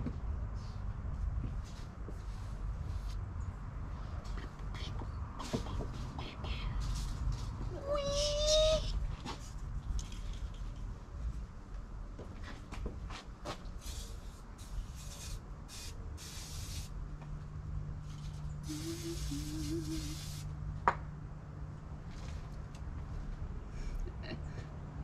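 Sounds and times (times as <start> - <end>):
aerosol can spraying: 13.8 - 16.9, 18.6 - 20.5.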